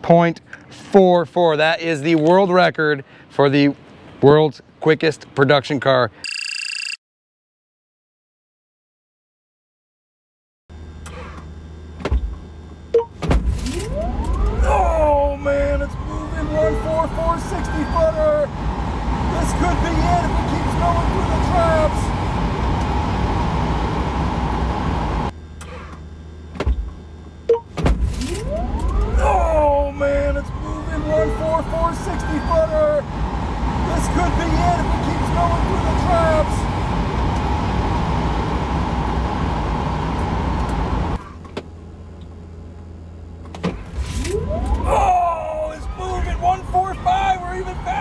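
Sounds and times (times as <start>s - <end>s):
low cabin hum: 10.8s - 48.0s
wind and tyre noise: 15.3s - 25.3s, 29.8s - 41.2s.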